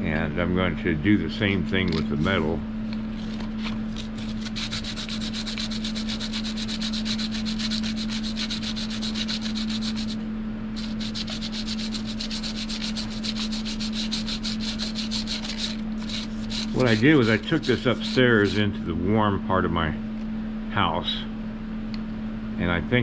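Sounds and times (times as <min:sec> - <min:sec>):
steady low hum: 0:00.0 - 0:23.0
metal rod scratching on sandpaper: 0:03.2 - 0:10.2, 0:10.8 - 0:18.8.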